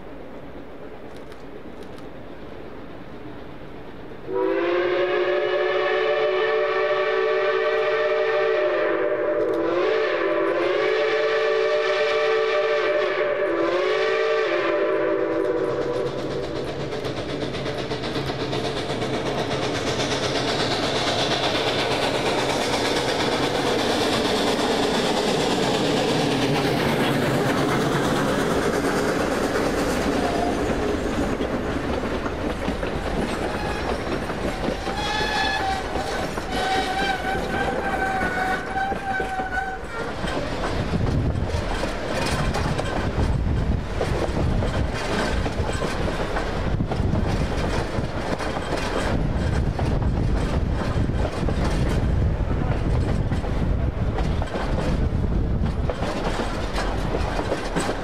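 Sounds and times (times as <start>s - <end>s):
steam locomotive chime whistle: 4.3s - 16.6s, 34.9s - 40.1s
steam engine exhaust: 4.3s - 32.0s
train wheels clattering over rail joints: 15.1s - 58.0s.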